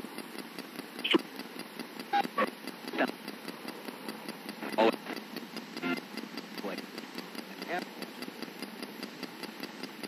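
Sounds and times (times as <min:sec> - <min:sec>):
radio static with rapid ticking: 0:00.0 - 0:10.0
chopped radio voice fragments: 0:01.0 - 0:01.3, 0:02.2 - 0:03.2, 0:04.6 - 0:05.2, 0:06.6 - 0:06.9, 0:07.6 - 0:07.9.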